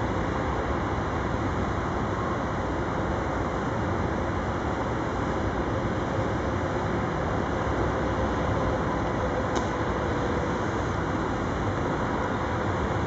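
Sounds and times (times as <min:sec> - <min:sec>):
sharp click: 0:09.5 - 0:09.8.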